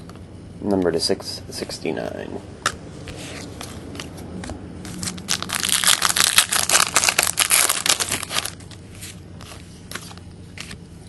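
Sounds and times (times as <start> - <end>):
wrapper tearing and crinkling: 4.9 - 8.7.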